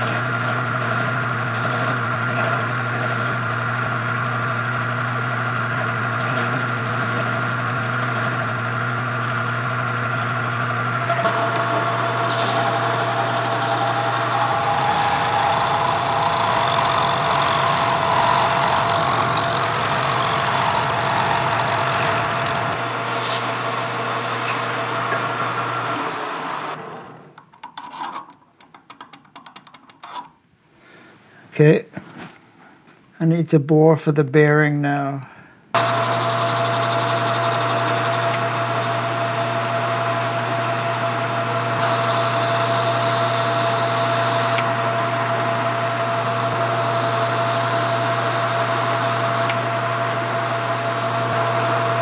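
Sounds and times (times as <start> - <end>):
tool cutting metal: 0.0 - 8.8, 11.1 - 26.6, 35.8 - 52.0
metal lathe humming: 0.0 - 27.2, 35.8 - 52.0.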